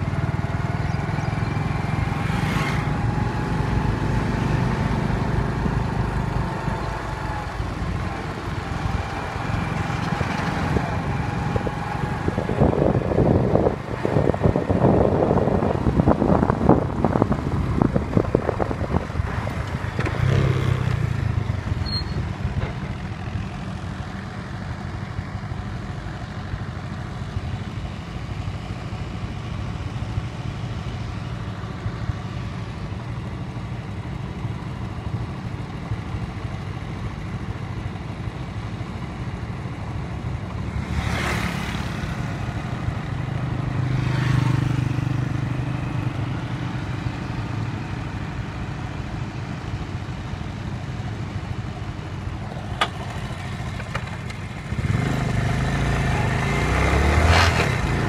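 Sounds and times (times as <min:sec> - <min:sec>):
motorcycle passing: 0:00.0 - 0:17.0, 0:17.8 - 0:24.1, 0:40.6 - 0:49.6, 0:51.4 - 0:58.0
loud engine: 0:00.0 - 0:58.0
tractor engine running: 0:00.0 - 0:58.0.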